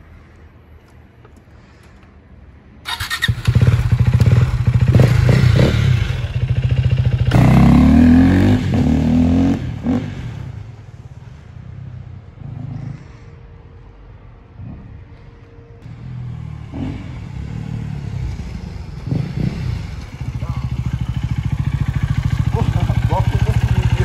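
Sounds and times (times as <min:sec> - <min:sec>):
motorcycle engine revving: 0:02.9 - 0:10.8, 0:15.9 - 0:24.0.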